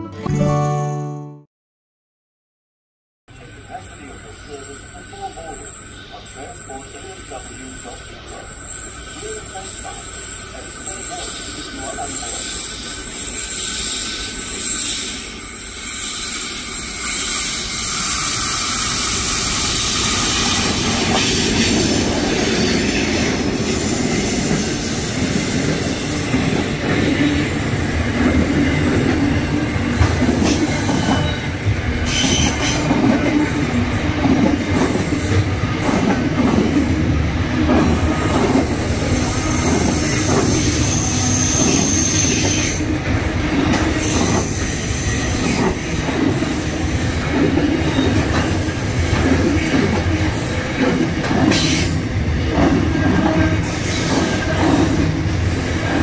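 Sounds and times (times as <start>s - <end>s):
train wheels rumbling on rail: 3.3s - 56.0s
high wheel squeals: 30.7s - 32.9s, 38.0s - 42.8s.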